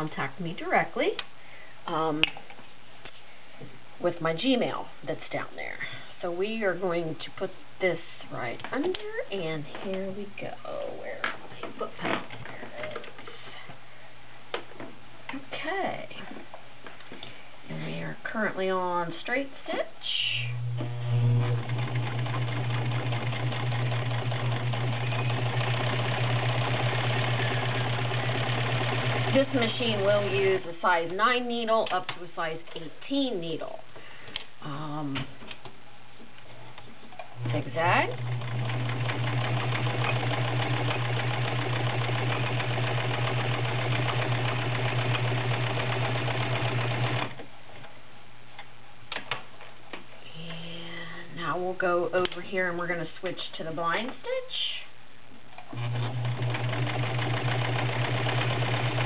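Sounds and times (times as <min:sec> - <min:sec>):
sewing machine motor hum: 0:20.6 - 0:30.4, 0:37.4 - 0:47.4, 0:55.7 - 0:59.0.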